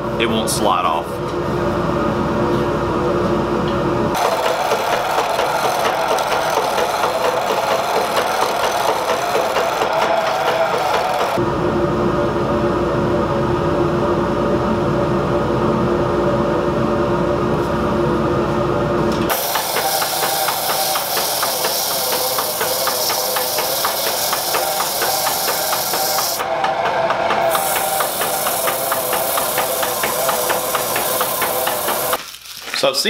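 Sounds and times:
sandpaper hissing on spinning wood: 4.2 - 11.4, 19.3 - 26.4, 27.5 - 32.2.

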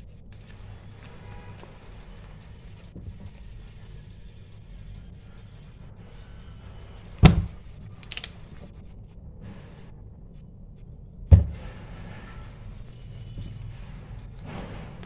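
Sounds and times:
paper rustling: 0.0 - 3.4, 7.2 - 8.6
heavy pages thudding: 7.2 - 8.3, 11.3 - 11.8.

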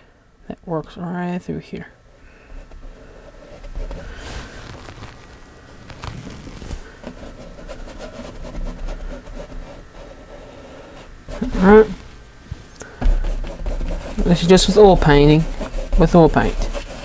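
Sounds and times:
bristle brush scrubbing canvas: 5.9 - 12.1, 12.8 - 17.0
brush tapping: 11.3 - 12.0, 12.8 - 17.0.

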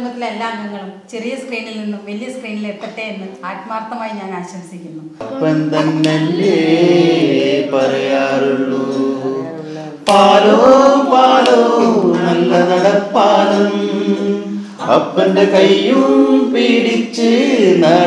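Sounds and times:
person singing unaccompanied: 5.2 - 18.0.

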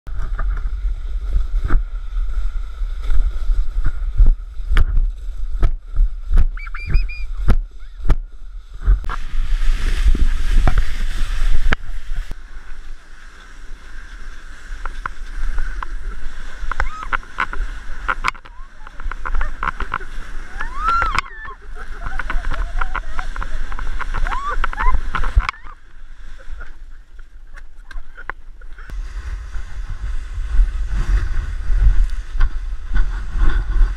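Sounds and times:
sled scraping on snow: 0.1 - 33.9
wind on microphone: 0.1 - 33.9
loud hissing snow spray: 9.1 - 16.5.

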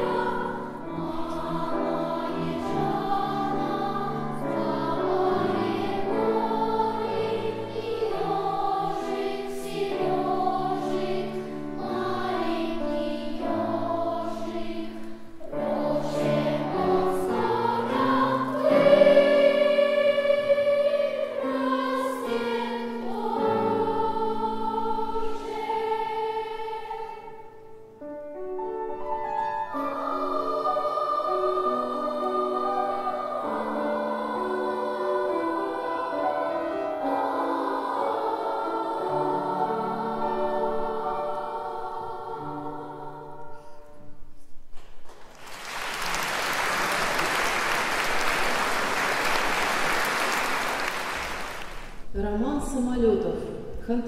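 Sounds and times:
girls' choir singing: 0.0 - 28.0, 29.3 - 44.0, 45.4 - 52.0
audience applause: 45.1 - 52.0.

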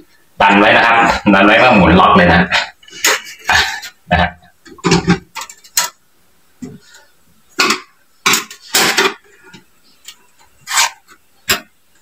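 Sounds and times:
hard plastic parts knocking and clicking: 4.7 - 6.0, 7.6 - 9.7.

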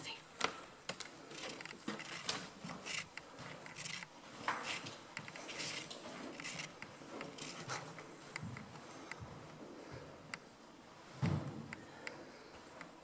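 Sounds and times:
scratchy rustles: 1.0 - 8.1.

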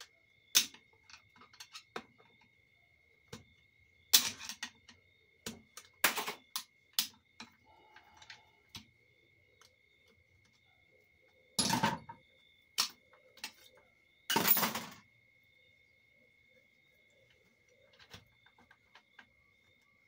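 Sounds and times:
faint steady high tone: 7.4 - 11.6.

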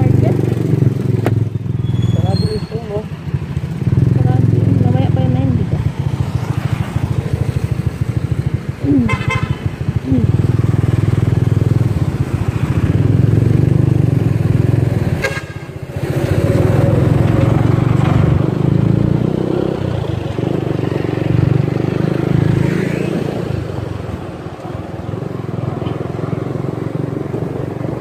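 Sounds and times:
motorcycle engine running: 0.0 - 28.0
road rumble: 0.0 - 28.0
wind: 0.0 - 28.0.

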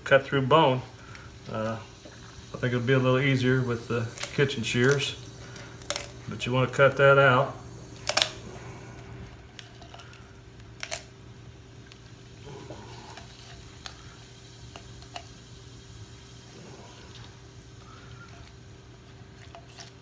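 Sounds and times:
steady low hum: 0.0 - 20.0
shears snipping and crunching bone: 4.1 - 6.3, 7.9 - 8.5, 9.3 - 11.1.

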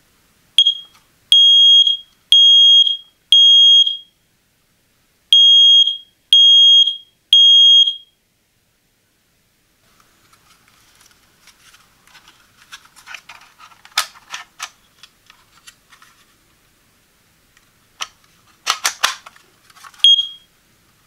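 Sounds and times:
smoke alarm beep: 0.6 - 4.2, 5.3 - 8.2, 20.0 - 20.5
plastic clicks and rattles: 11.0 - 16.1, 18.0 - 20.1
battery drawer snapping: 18.0 - 20.0.

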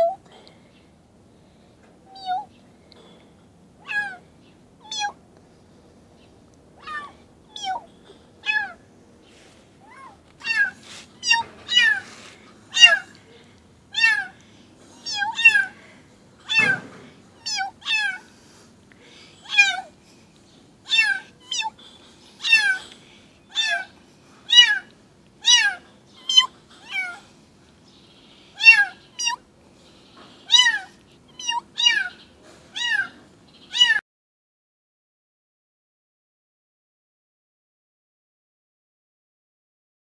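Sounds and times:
kitten meowing: 2.1 - 2.5, 3.8 - 4.2, 4.8 - 5.2, 6.8 - 7.8, 8.4 - 8.8, 9.8 - 12.0, 12.8 - 13.1, 14.0 - 14.3, 15.0 - 15.8, 16.5 - 18.2, 20.9 - 21.8, 22.4 - 22.8, 23.5 - 23.9, 24.5 - 27.2, 28.6 - 29.4, 30.5 - 32.2, 32.8 - 34.0.

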